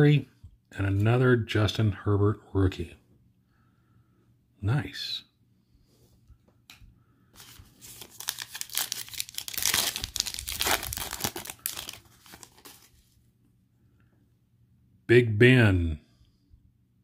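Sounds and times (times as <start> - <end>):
foil wrapper crinkling and tearing: 7.4 - 13.0.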